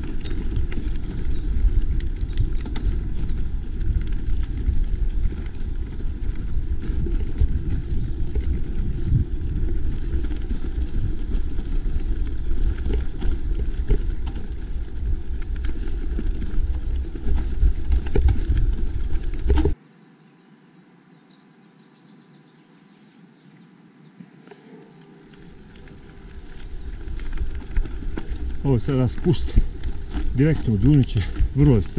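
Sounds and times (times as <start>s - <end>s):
wind buffeting microphone: 0.0s - 19.8s
bike knocks and rattles: 12.7s - 19.8s, 25.6s - 31.9s
faint ticks: 13.9s - 19.8s, 25.3s - 31.9s.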